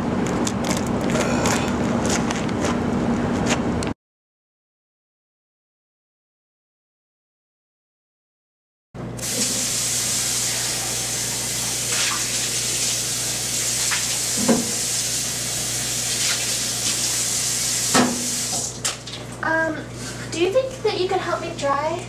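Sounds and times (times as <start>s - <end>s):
tap water running into sink: 9.2s - 19.2s.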